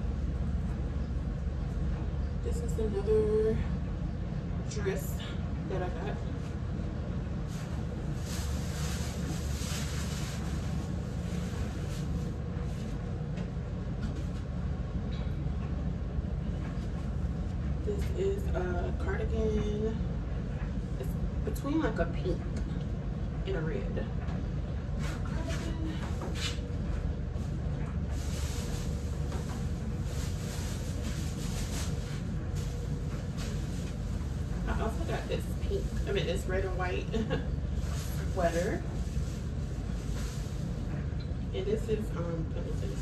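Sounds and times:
steady low rumble: 0.0s - 43.0s
fabric rustling: 7.4s - 13.0s, 28.1s - 36.2s, 37.2s - 40.8s.

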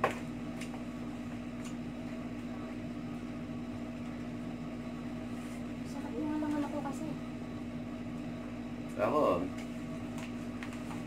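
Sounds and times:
appliance hum: 0.0s - 11.0s.

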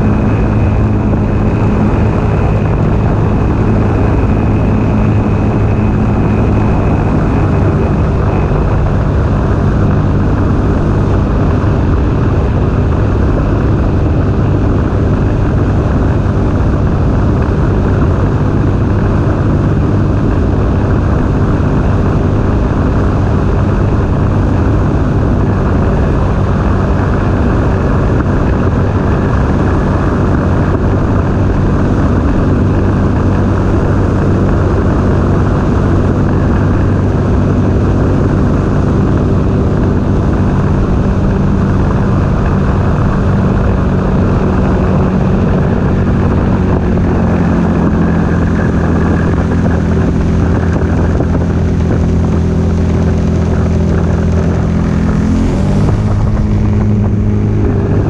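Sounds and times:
personal watercraft engine drone: 0.0s - 58.0s.

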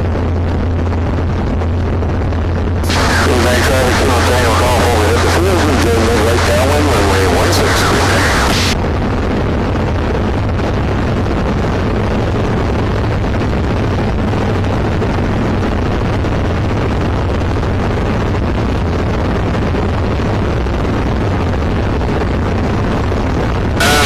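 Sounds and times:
wind noise from airflow: 0.0s - 5.6s, 8.0s - 24.0s
aircraft engine and propeller: 0.0s - 11.1s.

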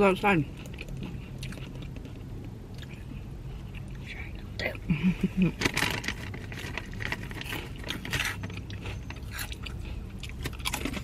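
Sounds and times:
chewing crunchy snack: 0.5s - 4.0s, 5.7s - 11.0s.

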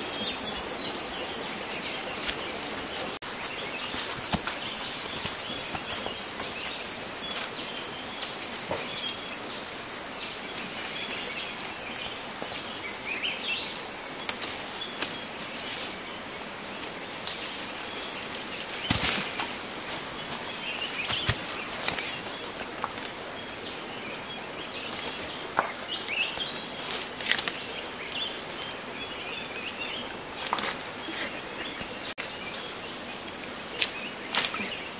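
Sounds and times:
leafy branches rustling: 0.0s - 29.0s
forest ambience: 0.0s - 34.9s
high pulsing insect call: 0.0s - 34.9s
twigs snapping: 3.2s - 7.5s, 18.3s - 23.1s, 24.9s - 27.6s.

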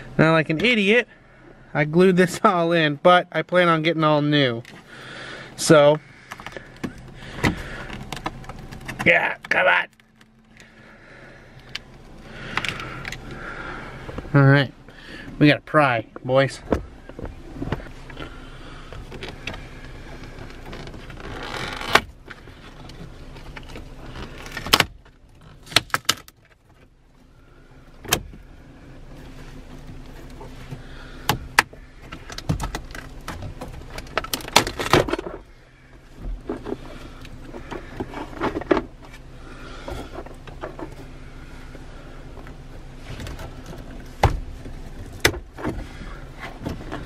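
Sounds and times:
plastic trim snapping and creaking: 20.3s - 26.7s, 31.2s - 35.5s.

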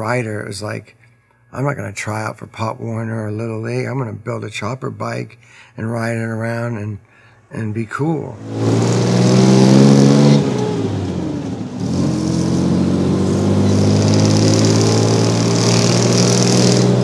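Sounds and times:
car engine running under load: 8.5s - 17.0s.

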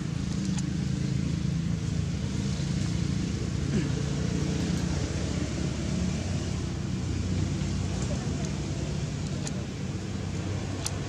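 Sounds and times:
engine running hum: 0.0s - 11.0s.

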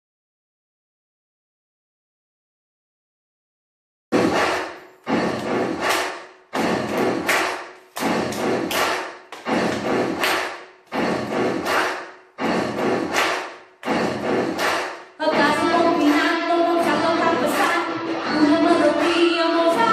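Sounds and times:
heavy stomping thumps: 4.2s - 17.6s
hand clap: 4.3s - 15.2s.

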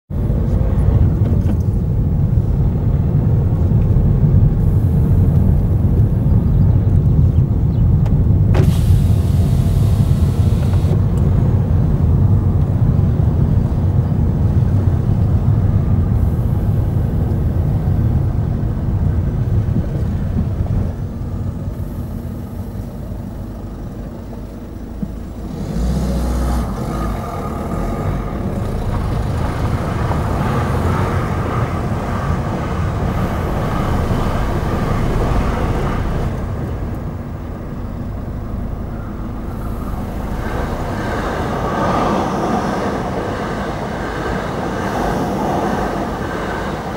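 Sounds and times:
car driving rumble: 0.1s - 46.9s.

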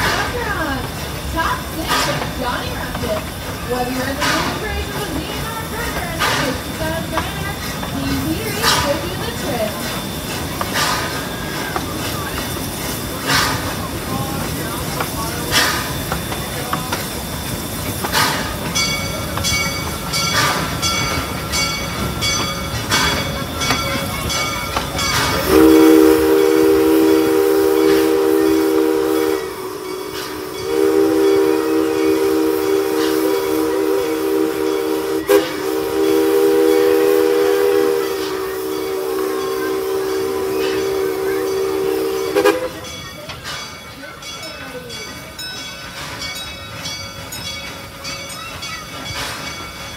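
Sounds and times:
hiss of steam: 0.0s - 44.2s
locomotive bell ringing: 0.0s - 49.9s
steam locomotive running: 0.0s - 49.9s
steam chime whistle blowing: 18.8s - 43.0s.

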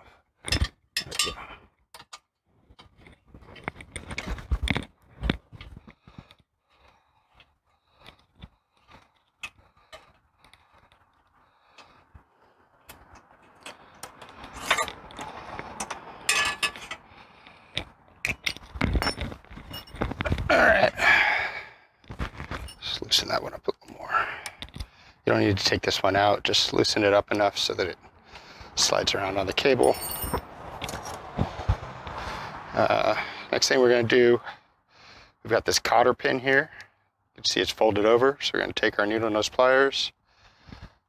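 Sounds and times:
metal clicks and clinks of tools: 0.5s - 2.3s, 13.1s - 17.0s, 18.2s - 20.1s.

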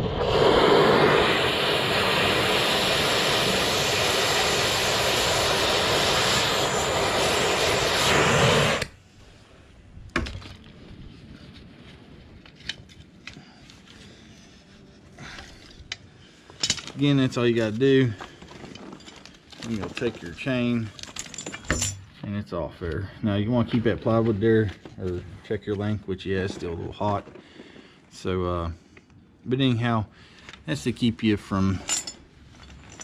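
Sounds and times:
gas torch burning: 0.0s - 10.1s.

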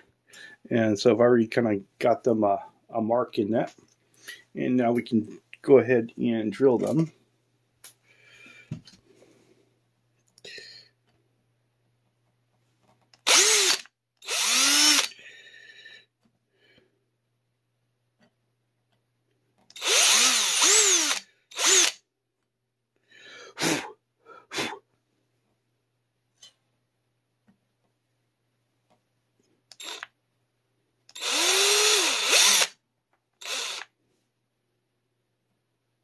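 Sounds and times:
power drill whirring: 13.2s - 15.1s, 19.7s - 22.0s, 29.7s - 30.1s, 31.1s - 32.8s, 33.4s - 33.9s.

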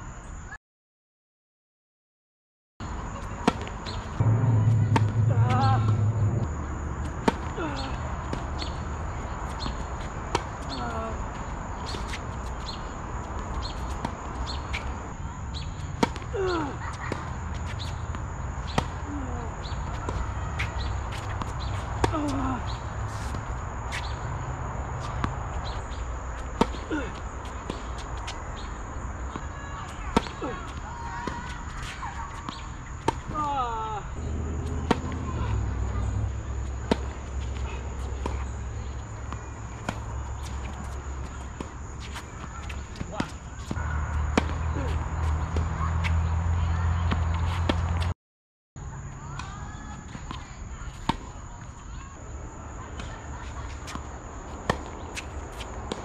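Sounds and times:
tennis ball struck by racquet: 3.4s - 8.8s, 34.6s - 36.0s, 36.7s - 38.6s, 39.2s - 46.2s, 54.6s - 56.0s
steady low rumble: 3.7s - 10.6s
steady high hum: 3.9s - 12.2s.

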